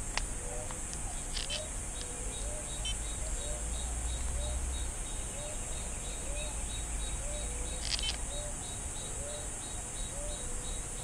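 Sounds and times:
high insect drone: 0.0s - 11.0s.

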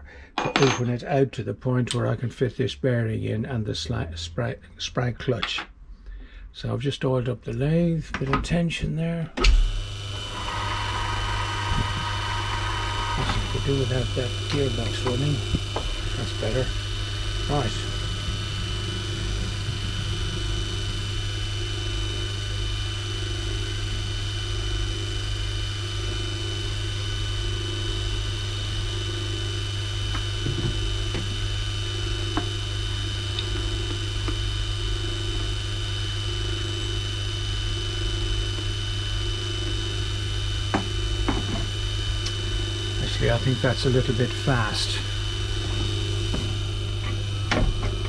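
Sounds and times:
high whine: 0.0s - 48.0s
lathe motor humming: 9.4s - 48.0s.

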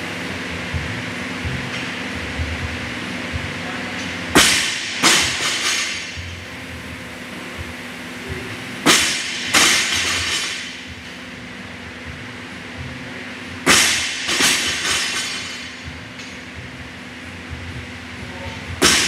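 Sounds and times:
fan hum: 0.0s - 19.0s
barbell dropped on rubber floor: 4.4s - 6.4s, 8.8s - 10.9s, 13.6s - 16.3s, 18.8s - 19.0s
rattle of plates and bar: 8.9s - 11.2s.

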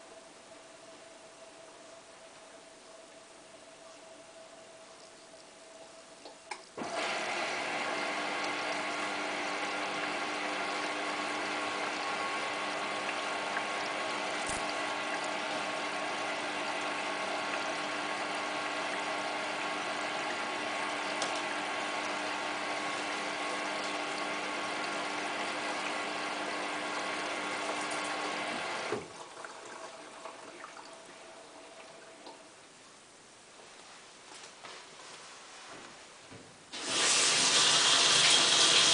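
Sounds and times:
washing machine water inlet hiss: 36.7s - 38.9s.

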